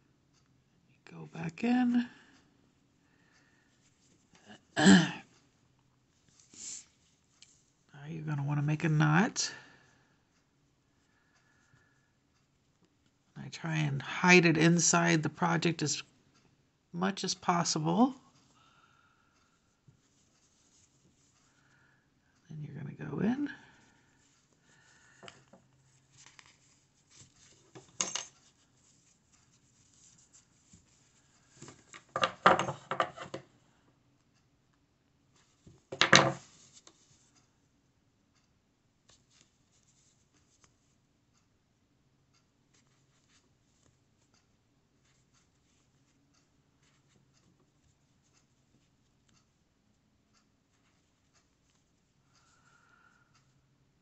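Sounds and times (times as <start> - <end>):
scratchy rustling of yarn: 6.2 - 7.9, 19.6 - 21.6, 24.1 - 32.2, 35.3 - 37.6, 39.1 - 41.0, 42.7 - 49.7, 50.4 - 52.4.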